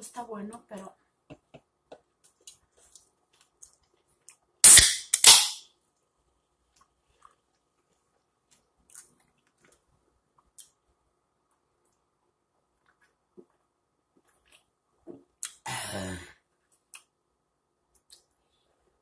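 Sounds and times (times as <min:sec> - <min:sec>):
can pull tab cracking: 0:04.6 - 0:05.6.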